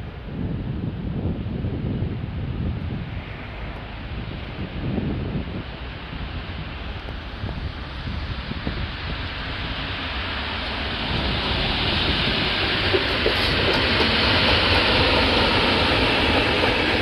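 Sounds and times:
train wheel and rail noise: 0.0s - 17.0s.

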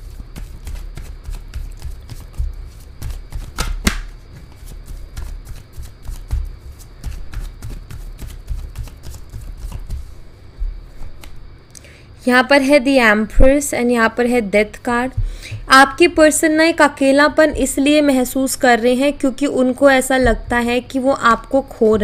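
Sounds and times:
cards being shuffled: 0.1s - 10.2s
sharp card snaps: 3.5s - 4.1s.

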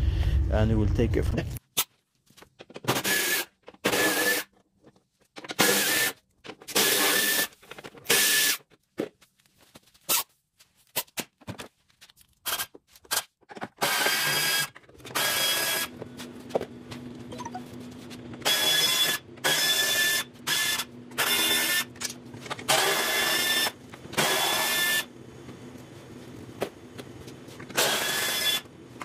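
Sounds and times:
power tool whining: 22.7s - 25.1s, 27.7s - 28.7s.

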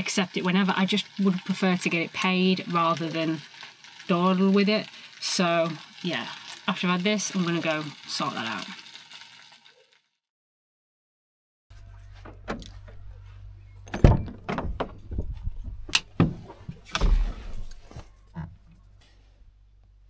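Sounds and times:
door and keys clicking: 13.9s - 15.0s
heavy thumps: 13.9s - 18.7s.

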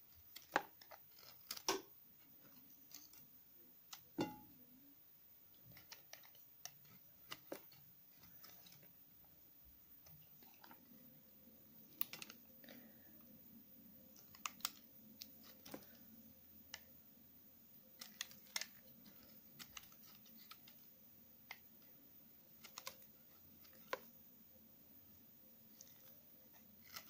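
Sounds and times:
knife shaving soap: 0.1s - 3.3s, 5.5s - 8.9s, 17.9s - 24.1s, 25.6s - 27.0s.

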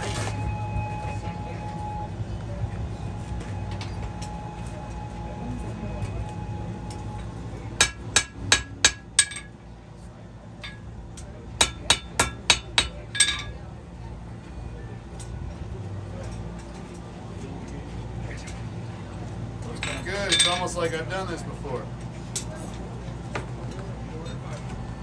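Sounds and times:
hammer striking steel on anvil: 7.8s - 9.6s, 10.6s - 11.0s, 11.6s - 13.6s.

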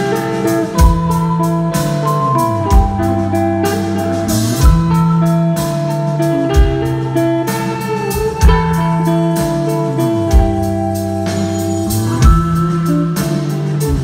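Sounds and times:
live rock band playing: 0.0s - 14.0s.

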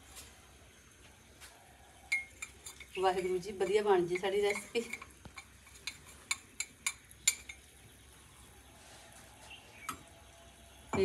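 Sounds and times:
utensil clinking on metal barrel: 2.1s - 7.7s.

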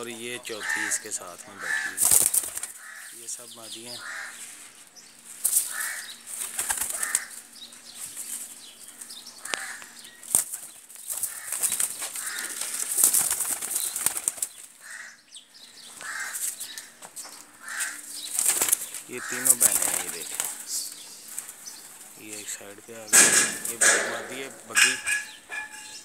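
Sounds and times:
pigeons flapping wings: 1.6s - 2.9s, 5.4s - 7.5s, 8.1s - 14.8s, 17.8s - 22.4s.

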